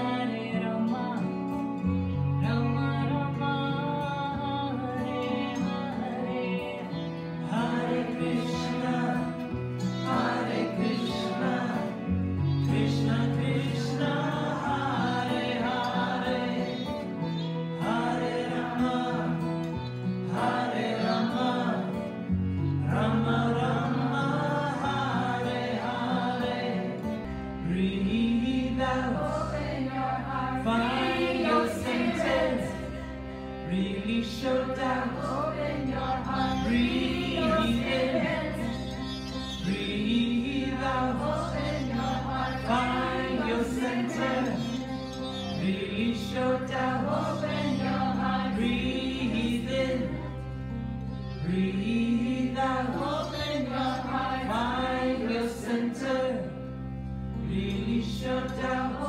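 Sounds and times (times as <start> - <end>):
acoustic guitar: 0.0 - 59.0
bowed cello: 0.0 - 59.0
harmonium: 0.0 - 59.0
women singing a devotional chant: 29.1 - 33.2, 34.9 - 38.9, 41.0 - 44.8, 46.9 - 50.3.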